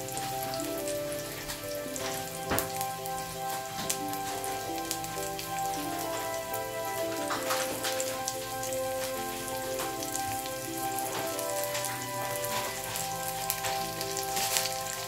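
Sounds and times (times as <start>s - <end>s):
garlic and onion sizzling in oil: 0.0s - 15.0s
slow background music: 0.0s - 15.0s.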